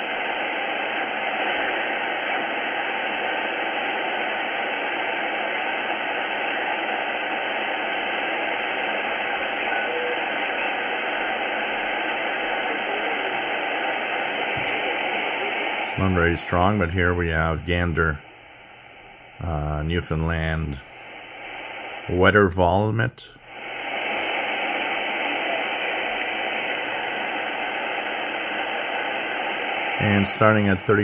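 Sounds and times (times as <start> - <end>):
shortwave radio static hiss: 0.0 - 31.0
faint radio whistle: 4.9 - 16.9, 23.6 - 31.0.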